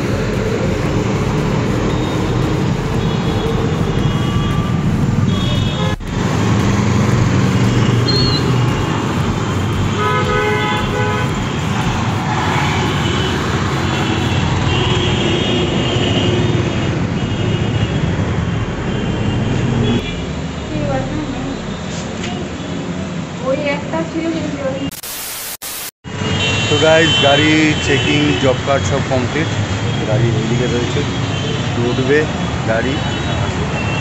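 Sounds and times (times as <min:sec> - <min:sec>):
car horns honking: 0:00.0 - 0:18.1
vehicles passing: 0:00.0 - 0:24.8.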